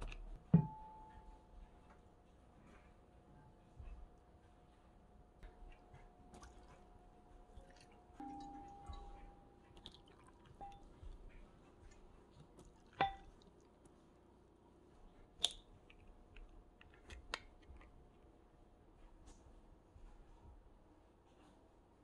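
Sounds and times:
dishes and utensils clinking: 0:08.2 - 0:09.8.

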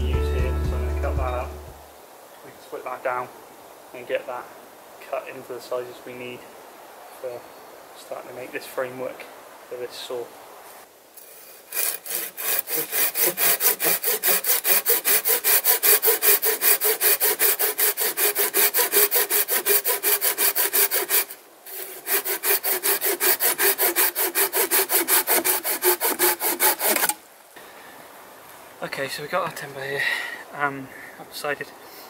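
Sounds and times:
hand saw cutting branch: 0:11.2 - 0:27.2.

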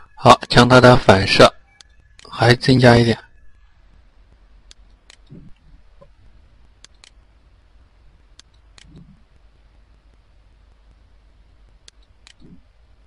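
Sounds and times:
steady low hum: 0:00.0 - 0:13.0
computer mouse clicks: 0:01.7 - 0:02.3, 0:04.6 - 0:06.1, 0:06.8 - 0:07.2, 0:08.3 - 0:09.2, 0:11.8 - 0:12.6.

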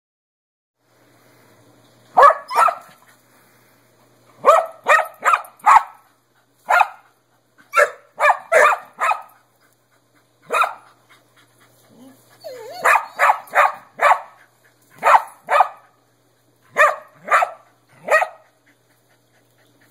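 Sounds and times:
dog barking: 0:02.2 - 0:02.9, 0:04.4 - 0:06.0, 0:06.7 - 0:07.0, 0:07.7 - 0:09.4, 0:10.5 - 0:10.9, 0:12.8 - 0:14.4, 0:15.0 - 0:16.0, 0:16.7 - 0:18.4.

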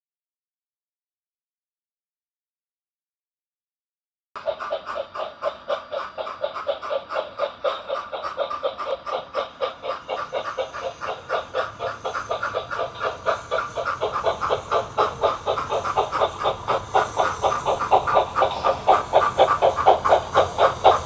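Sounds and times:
model steam locomotive chuffing: 0:04.4 - 0:21.0
wheels rumbling on track: 0:04.4 - 0:21.0.

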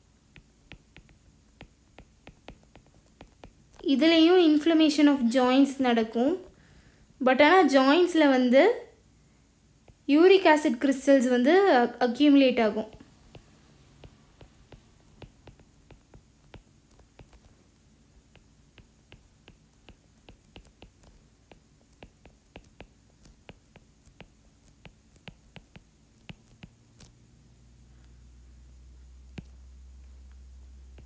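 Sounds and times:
stylus tapping on glass screen: 0:00.3 - 0:03.8, 0:12.9 - 0:17.6, 0:18.2 - 0:26.8, 0:29.3 - 0:31.0.

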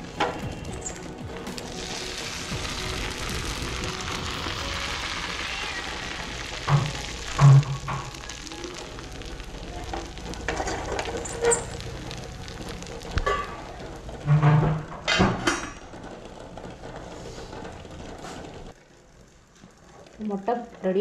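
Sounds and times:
batter sizzling in a pan: 0:00.2 - 0:14.0.

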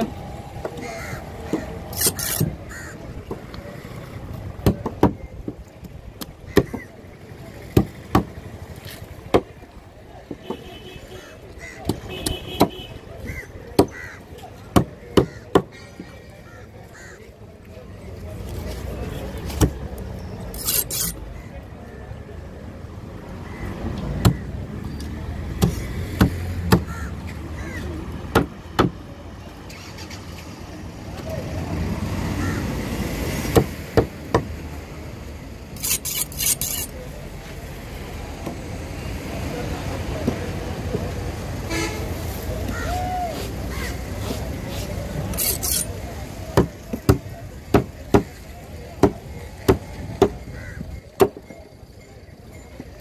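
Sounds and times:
crows cawing: 0:00.8 - 0:01.7, 0:02.7 - 0:03.0, 0:13.3 - 0:14.3, 0:15.2 - 0:17.3, 0:26.9 - 0:27.8, 0:32.4 - 0:32.7, 0:50.6 - 0:50.9
knife chopping on wooden board: 0:25.6 - 0:26.9.

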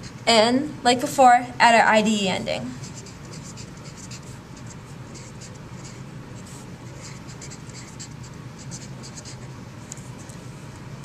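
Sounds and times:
low steady hum: 0:00.0 - 0:11.0
marker scratching on paper: 0:02.8 - 0:10.3.

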